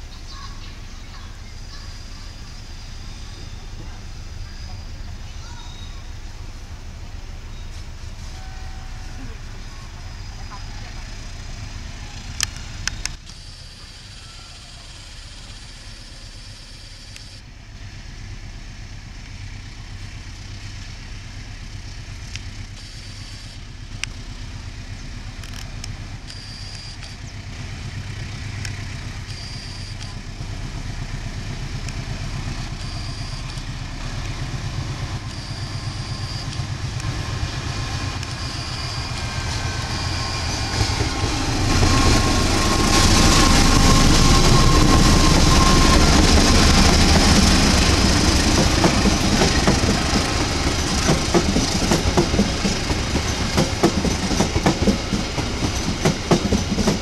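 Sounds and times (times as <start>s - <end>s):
diesel locomotive passing: 0.0s - 13.2s, 23.6s - 57.0s
train wheels clickety-clack: 33.4s - 57.0s.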